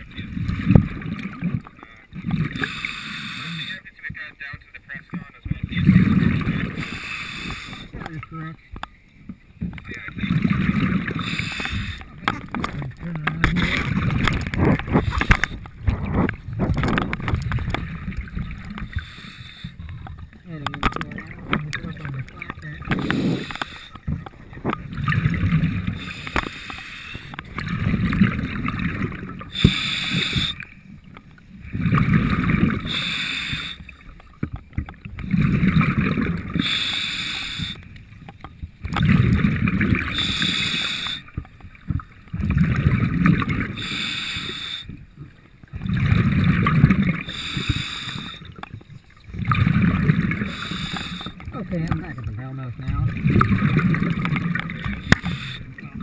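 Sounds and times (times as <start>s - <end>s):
bubbling rumble: 0.0s - 2.7s, 5.3s - 8.5s, 9.5s - 26.2s, 27.3s - 33.2s, 33.8s - 36.8s, 38.0s - 40.4s, 41.3s - 44.0s, 45.1s - 47.9s, 48.5s - 56.0s
diver breathing through regulator: 2.4s - 3.8s, 6.0s - 8.1s, 10.8s - 12.6s, 13.6s - 17.1s, 18.6s - 20.1s, 22.9s - 24.2s, 25.5s - 28.1s, 29.4s - 30.8s, 31.9s - 34.0s, 35.5s - 38.0s, 39.9s - 41.4s, 43.6s - 45.0s, 47.1s - 48.6s, 50.1s - 51.5s, 54.6s - 55.8s.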